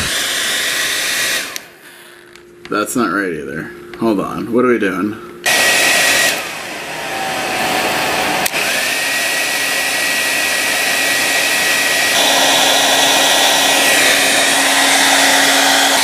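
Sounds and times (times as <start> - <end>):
hair dryer running: 0.0 - 2.3, 5.4 - 16.0
hair dryer click: 0.1 - 1.7, 5.5 - 6.5, 8.4 - 16.0.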